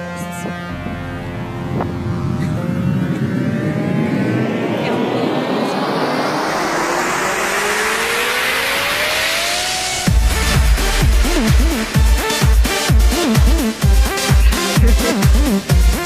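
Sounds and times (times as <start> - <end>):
rising noise sweep: 0.7 - 13.6
heavy bass kicks: 10.0 - 16.0.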